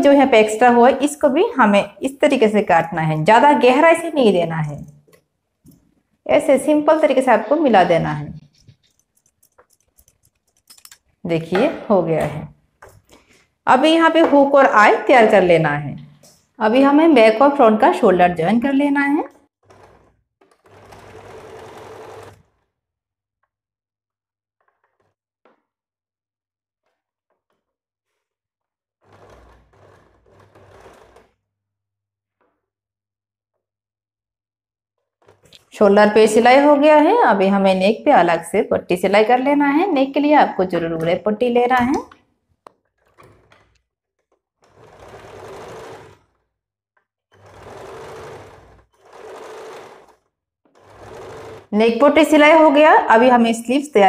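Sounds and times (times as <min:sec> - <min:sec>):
electric sewing machine stitching: 0:18.0 - 0:22.8, 0:29.0 - 0:31.5, 0:35.0 - 0:37.0, 0:42.8 - 0:46.6, 0:47.3 - 0:53.4.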